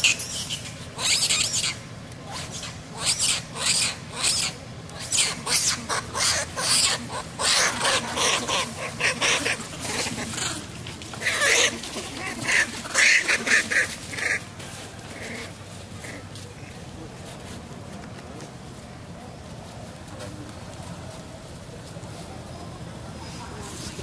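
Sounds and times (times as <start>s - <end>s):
young monkeys shrieking: 0.0s - 14.5s, 15.1s - 16.2s.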